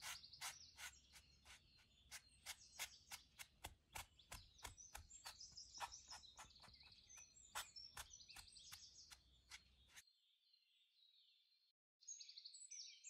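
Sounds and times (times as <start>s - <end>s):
sponge dabbing paint on canvas: 0.0s - 10.0s
birds chirping: 0.0s - 11.5s.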